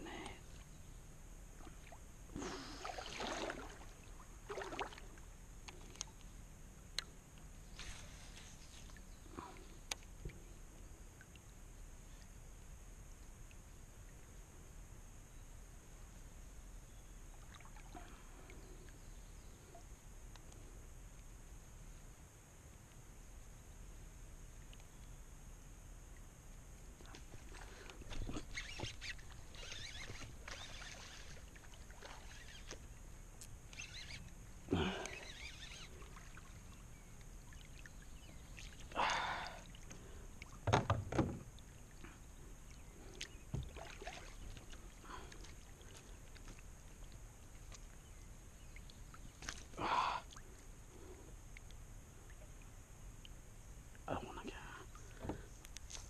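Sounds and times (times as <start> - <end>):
paddle splashing in water: 1.6 - 5.2, 27.0 - 32.8, 43.2 - 47.9.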